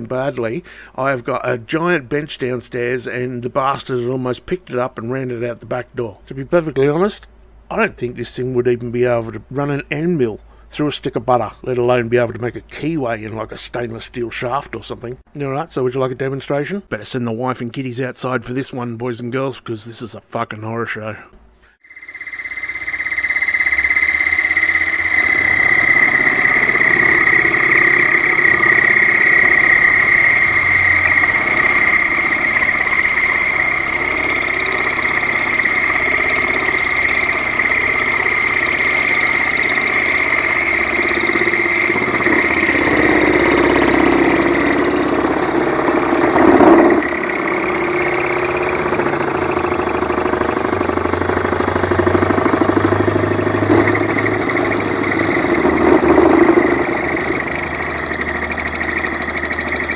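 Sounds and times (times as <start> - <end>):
milling machine motor whine: 21.8 - 59.9
rough cutting chatter: 25.3 - 59.9.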